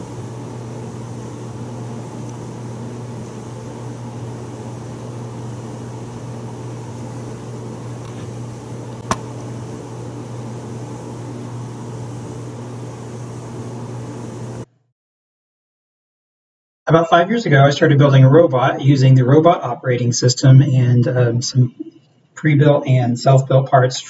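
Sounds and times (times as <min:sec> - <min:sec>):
low machine hum: 0:00.0 - 0:14.7.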